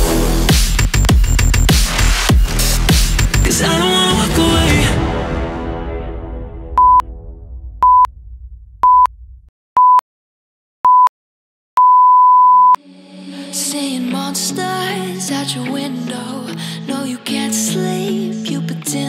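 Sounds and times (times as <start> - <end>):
background music: 1.8 - 8.0, 12.8 - 19.0
short electronic beeps: 6.8 - 7.0, 7.8 - 8.1, 8.8 - 9.1, 9.8 - 10.0, 10.9 - 11.1, 11.8 - 12.8
long electronic beep: 6.8 - 7.2, 7.8 - 8.2, 8.8 - 9.2, 11.8 - 12.8.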